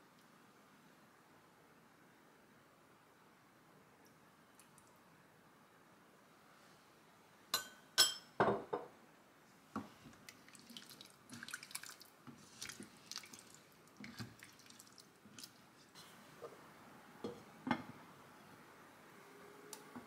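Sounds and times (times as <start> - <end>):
spoon stirring stew: 9.9 - 16.6.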